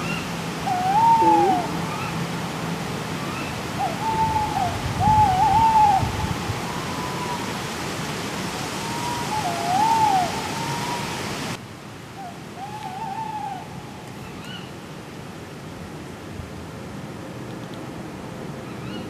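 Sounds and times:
owls hooting: 0.6s - 2.2s.

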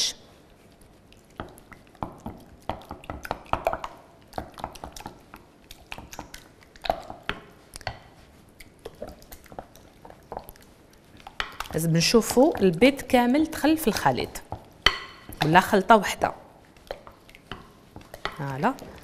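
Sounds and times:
spatula stirring wet mixture: 0.0s - 19.0s
spatula tapping glass bowl: 14.6s - 15.6s.

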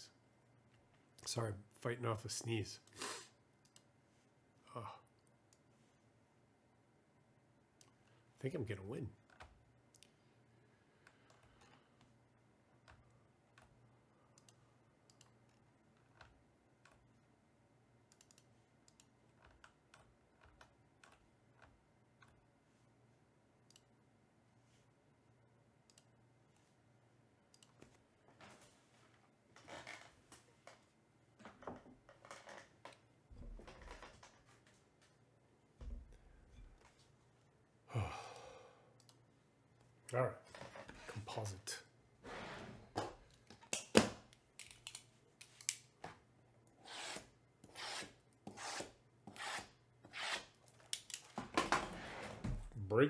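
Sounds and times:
low room hum: 0.0s - 53.0s
computer mouse clicks: 3.6s - 3.9s, 14.4s - 17.0s, 18.1s - 22.4s, 23.7s - 23.9s, 25.9s - 26.1s, 27.5s - 27.9s, 39.0s - 39.2s.

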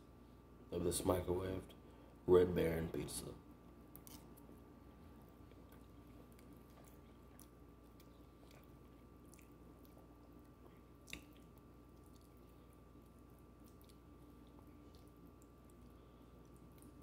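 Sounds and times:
faint steady hum: 0.0s - 17.0s
faint chewing: 3.9s - 17.0s.

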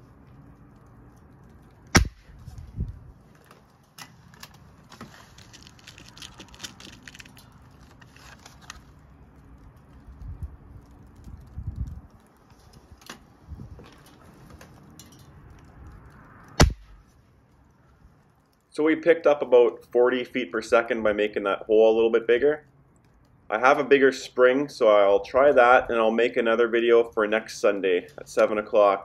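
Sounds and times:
air rifle shot: 2.0s - 2.3s, 16.6s - 17.0s.

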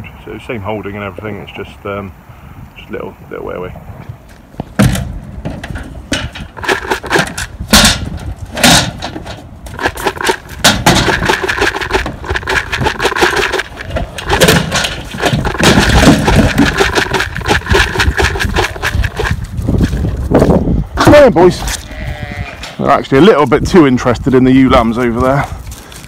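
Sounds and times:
loud knocks and rattles: 4.6s - 20.1s.

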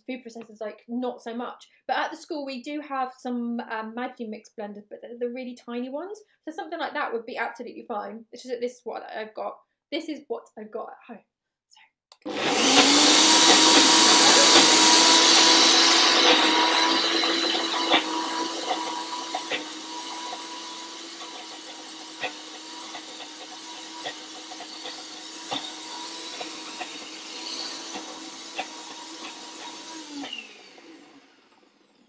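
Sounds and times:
blender motor running: 12.2s - 32.0s.

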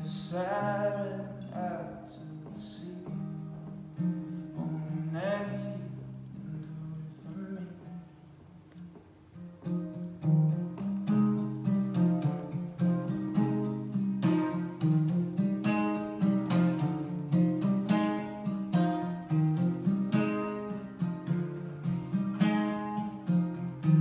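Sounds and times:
acoustic guitar strumming chords: 0.0s - 24.0s.

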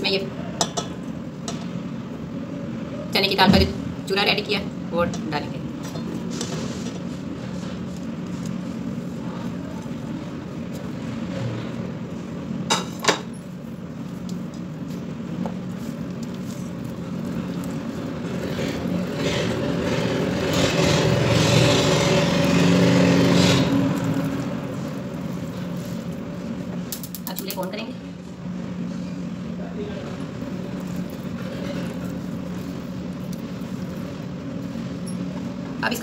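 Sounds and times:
steady low hum: 0.0s - 36.0s
spatula stirring thick mix: 13.5s - 26.9s, 30.1s - 35.6s
spatula scraping pot: 16.0s - 26.2s.

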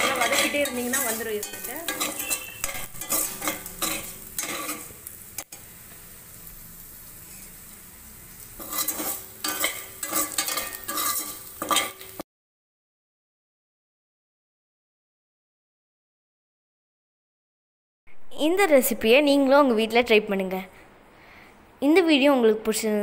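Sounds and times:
spatula scraping a pan: 0.0s - 5.6s, 8.6s - 12.2s
food sizzling in oil: 0.0s - 12.2s.

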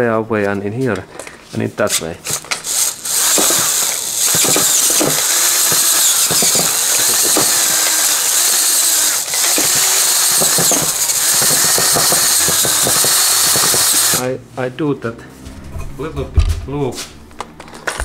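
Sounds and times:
drill cutting metal squealing: 2.3s - 14.2s.

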